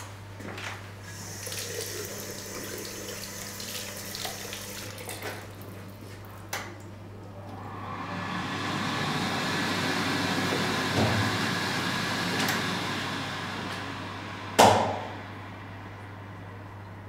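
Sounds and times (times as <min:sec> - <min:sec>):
running water: 0:01.1 - 0:06.4.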